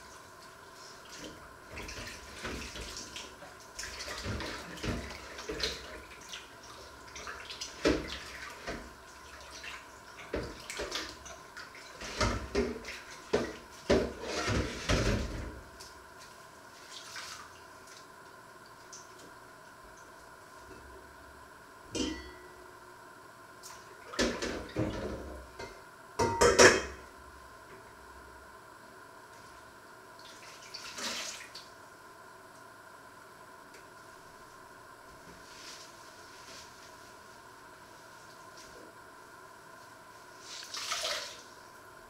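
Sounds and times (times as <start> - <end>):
water splashing in sink: 1.0 - 15.6, 30.2 - 31.7, 40.4 - 41.5.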